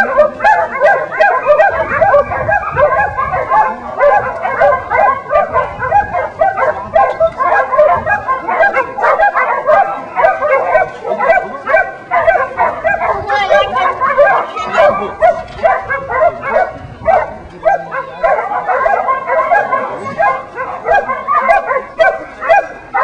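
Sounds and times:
dogs barking and yipping: 0:00.0 - 0:23.0.

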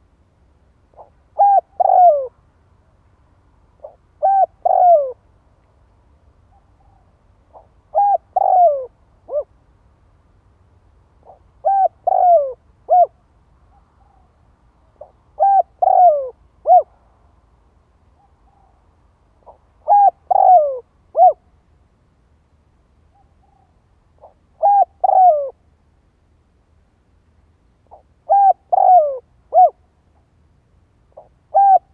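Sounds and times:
dove cooing: 0:00.9 - 0:02.4, 0:03.8 - 0:05.2, 0:06.5 - 0:09.5, 0:11.2 - 0:14.3, 0:15.0 - 0:16.9, 0:19.4 - 0:21.4, 0:23.1 - 0:25.6, 0:27.9 - 0:29.8, 0:31.2 - 0:31.9.

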